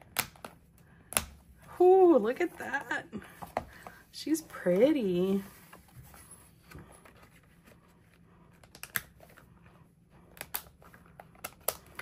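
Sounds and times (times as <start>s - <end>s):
planner pages clicking on discs: 8.5s - 9.5s, 10.2s - 12.0s.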